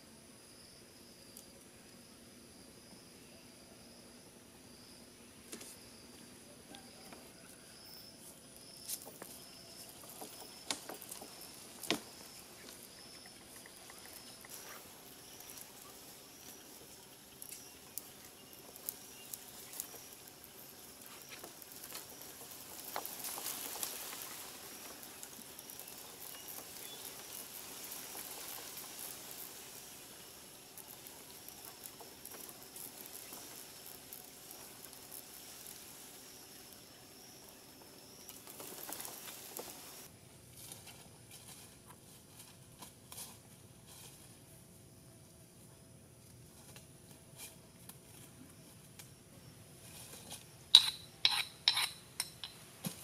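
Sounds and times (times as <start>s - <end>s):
high insect drone: 0.0s - 53.0s
leaves and branches rustling: 5.2s - 50.7s
bamboo platform clicking: 10.0s - 14.7s.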